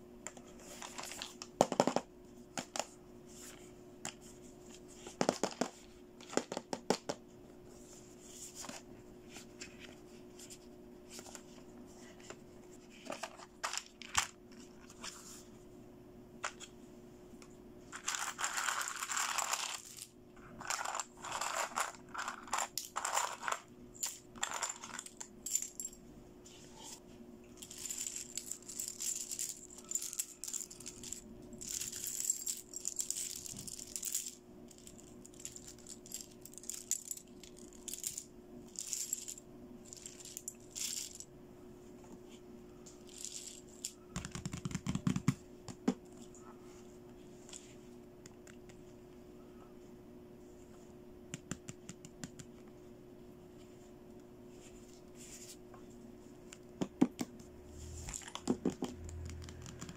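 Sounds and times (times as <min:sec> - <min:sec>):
plastic toy pieces clattering: 0:17.9 - 0:25.8, 0:27.6 - 0:41.2.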